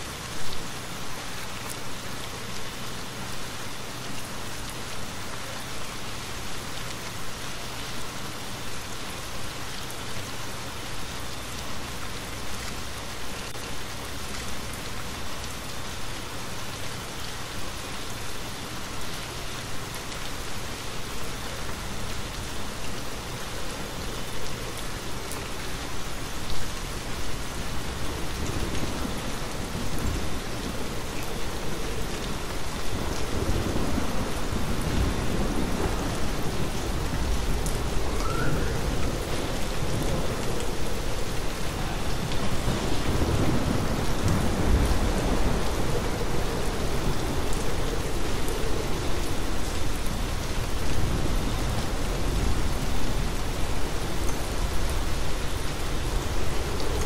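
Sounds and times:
rain falling: 0.0 - 57.0
low rumble of thunder: 27.6 - 57.0.

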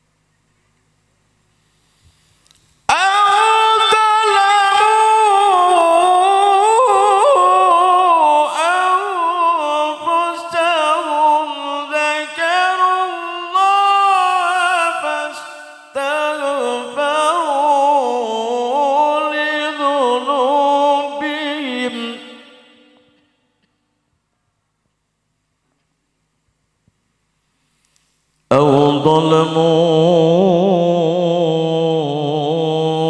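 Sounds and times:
man chanting over a microphone: 2.9 - 23.2, 28.5 - 33.0.

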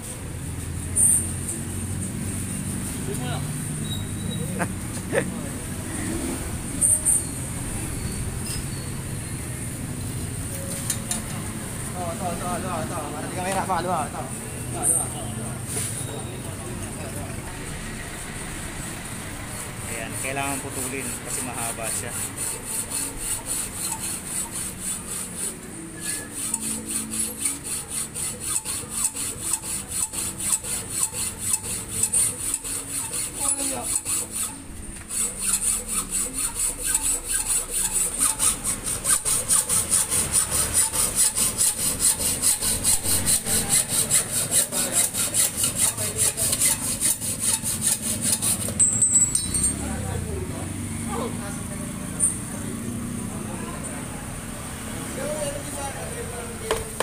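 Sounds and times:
hacksaw cutting metal tube: 6.8 - 7.3, 19.5 - 49.8.

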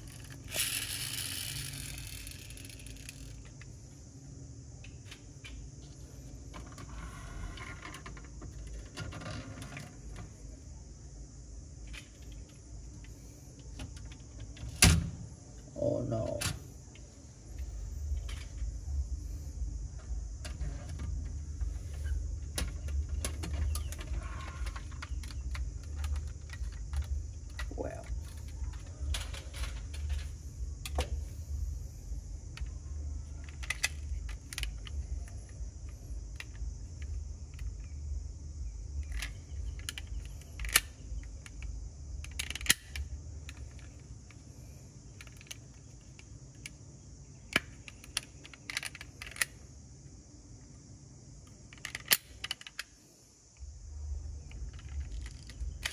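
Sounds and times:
toy car doors clicking: 0.0 - 3.4.

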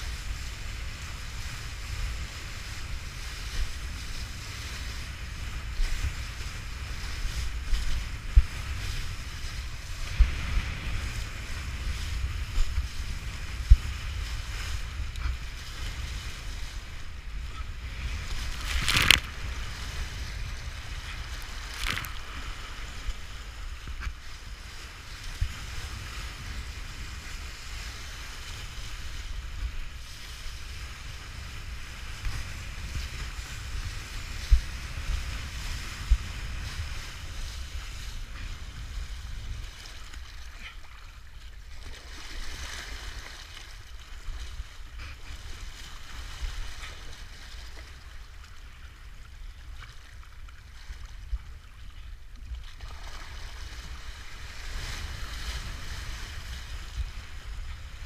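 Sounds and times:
board cutting through water: 0.0 - 58.0
wind buffeting microphone: 0.0 - 58.0
water splash: 18.2 - 23.2, 52.6 - 54.0.

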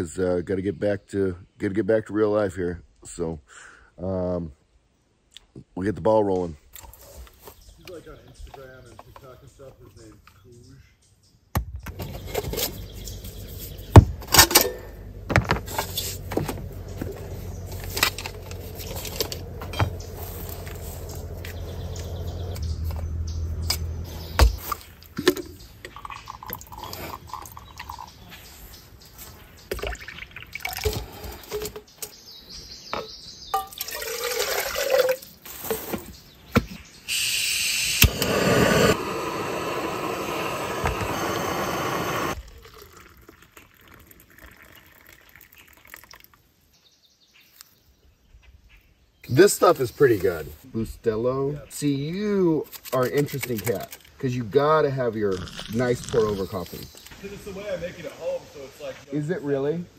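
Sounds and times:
gas burner hissing: 37.1 - 42.4.

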